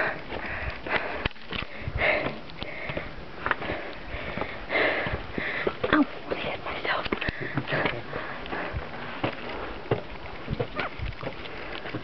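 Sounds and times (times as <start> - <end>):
person breathing heavily: 0.0 - 5.8, 6.6 - 9.1.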